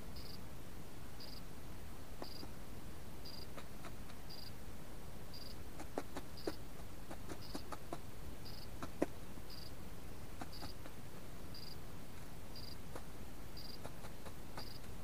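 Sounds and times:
bird pecking clicks: 5.8 - 8.0, 10.4 - 11.0, 13.7 - 15.0.

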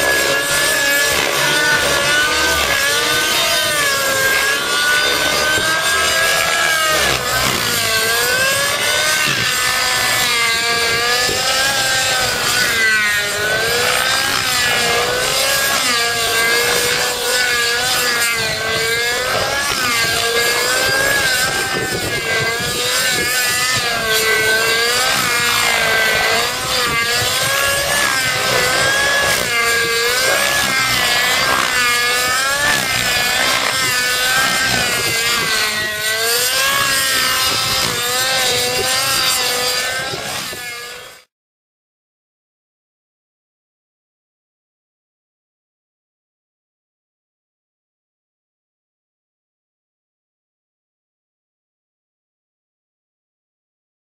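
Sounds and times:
model helicopter buzzing whine: 0.0 - 41.3.

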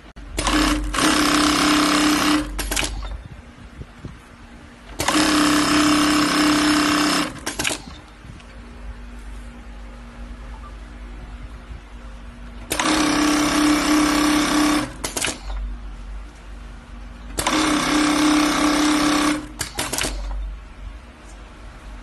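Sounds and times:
lasting machine stitching hum: 0.0 - 22.0
sharp machine clicks: 0.4 - 3.2, 4.9 - 8.1, 12.6 - 15.7, 17.3 - 20.4.

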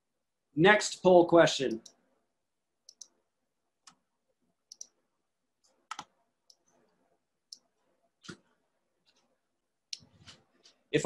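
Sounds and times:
computer mouse clicks: 2.9 - 3.2, 4.7 - 5.0, 5.7 - 6.9.

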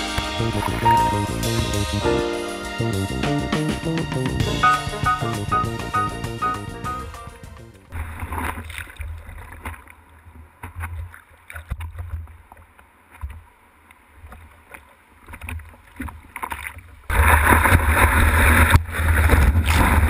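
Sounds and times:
low rumbles: 0.2 - 2.2.

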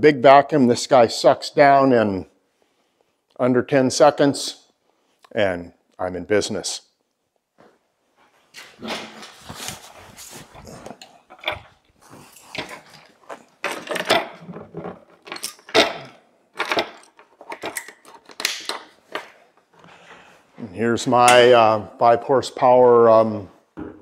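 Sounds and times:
chain and hook clinking: 12.4 - 18.8.

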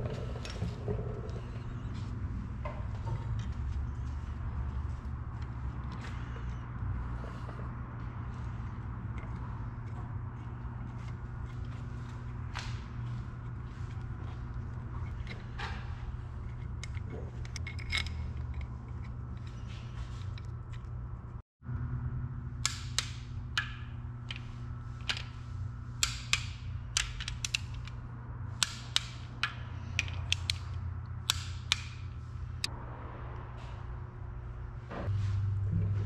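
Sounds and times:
steady low hum: 0.0 - 36.0
metal socket clicks and clacks: 26.0 - 28.0, 28.6 - 32.1
ratchet clicking: 26.0 - 28.0, 28.6 - 32.2.

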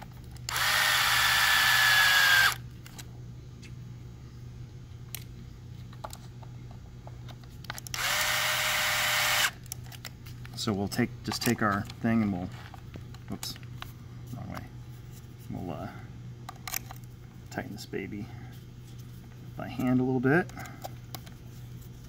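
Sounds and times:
cordless drill driving screws: 0.5 - 2.6, 7.9 - 9.6.

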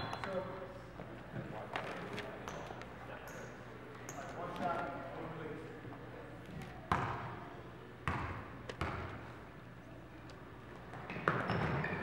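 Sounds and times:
basketball bouncing on gym floor: 6.9 - 7.3, 8.0 - 9.2, 10.9 - 12.0.

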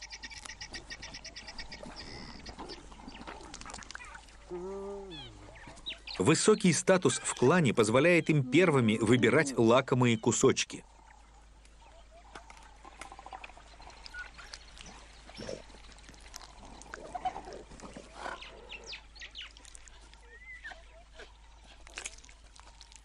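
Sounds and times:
hyenas tearing and chewing meat: 0.2 - 6.0, 11.9 - 23.0.

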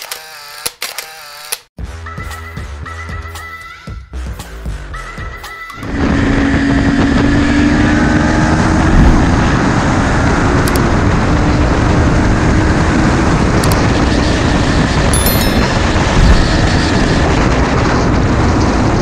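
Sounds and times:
motorcycle engine cruising: 5.8 - 19.0
wind rush on microphone: 5.8 - 19.0.

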